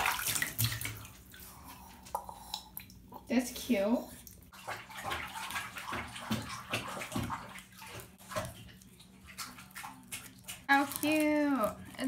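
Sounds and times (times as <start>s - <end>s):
water sloshing in bathtub: 0.0s - 12.0s
plastic wrapping crinkling: 10.7s - 12.0s.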